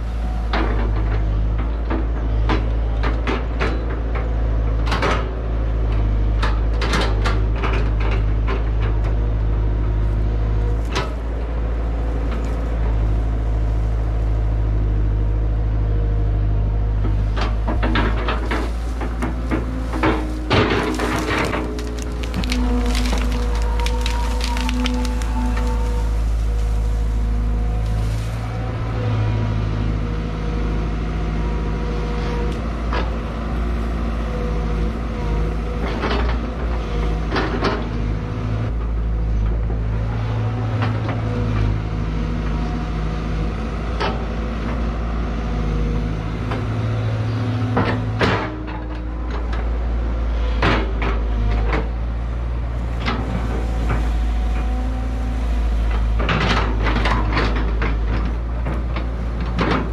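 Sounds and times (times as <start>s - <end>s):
excavator diesel engine running: 0.0s - 59.9s
sharp cracks of wood breaking: 19.9s - 26.8s.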